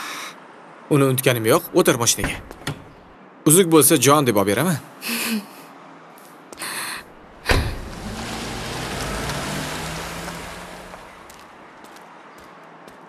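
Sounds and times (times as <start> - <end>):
vehicle hum: 7.1 - 11.8
car door thud: 7.4 - 11.2.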